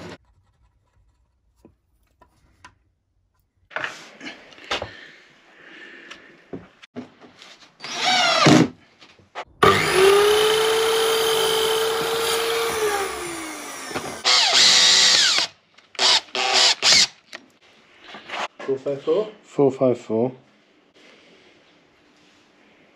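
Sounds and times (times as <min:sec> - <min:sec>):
mitre saw motor whine: 0:09.6 - 0:15.4
cordless drill burst: 0:09.6 - 0:17.2.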